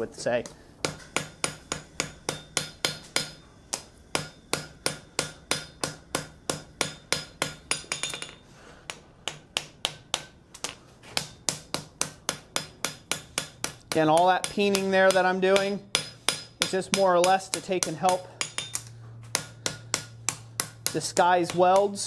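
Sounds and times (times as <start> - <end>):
hammer striking steel on anvil: 0.8 - 22.0.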